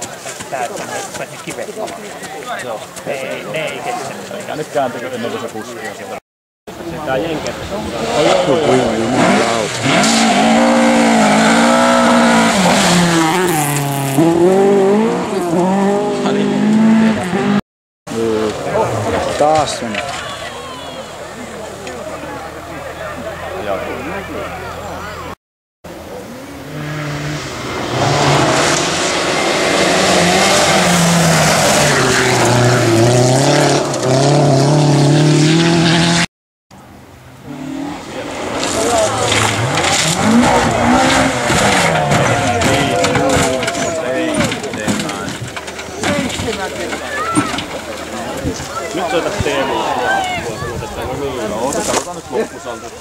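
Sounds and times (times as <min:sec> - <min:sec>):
rally car engines at high revs: 0:07.4 - 0:17.6, 0:25.9 - 0:36.3, 0:37.3 - 0:50.0
gravel and tyre hiss: 0:25.9 - 0:32.4.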